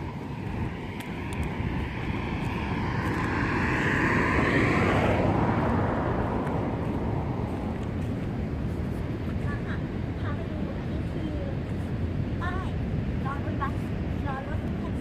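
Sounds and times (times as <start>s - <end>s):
vehicle passing by: 0.0s - 9.2s
wind rumble on microphone: 0.0s - 15.0s.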